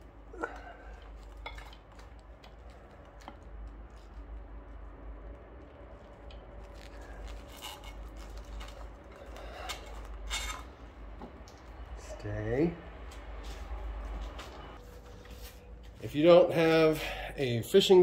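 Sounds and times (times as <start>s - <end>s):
faint low hum: 0.0s - 18.0s
cable and parts clicking and rustling: 0.5s - 4.4s.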